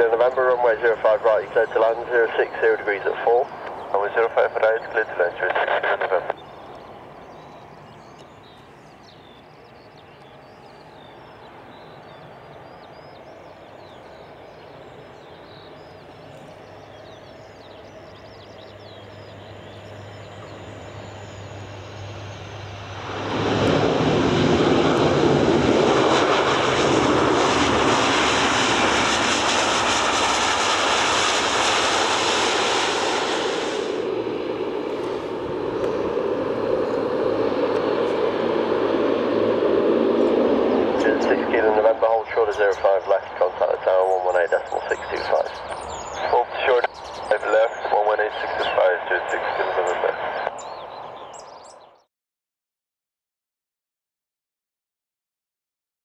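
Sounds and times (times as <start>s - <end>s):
turboprop aircraft engines: 0.0s - 52.0s
propellers roaring in reverse pitch: 13.7s - 42.6s.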